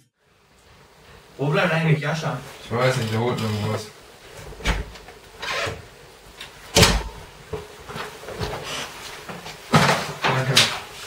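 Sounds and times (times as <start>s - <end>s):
heavy thud: 6.8s - 7.4s.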